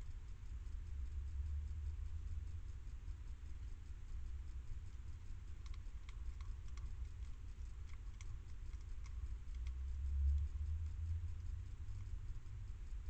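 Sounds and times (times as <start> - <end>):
low steady hum: 0.0 - 13.0
hedgehog crunching dry food: 4.8 - 12.4.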